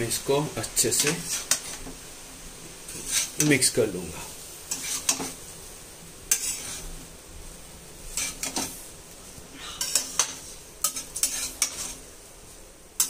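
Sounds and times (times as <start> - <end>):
faint sizzle: 0.0 - 13.0
utensil scraping a pan: 0.8 - 2.0, 2.8 - 3.7, 4.5 - 5.6, 6.3 - 7.1, 8.0 - 8.9, 9.6 - 12.1.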